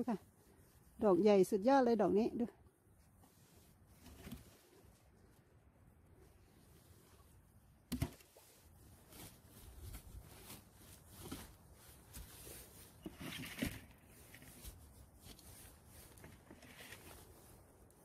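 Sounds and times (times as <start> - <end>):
stick scraping pine needles: 8.0 - 18.0.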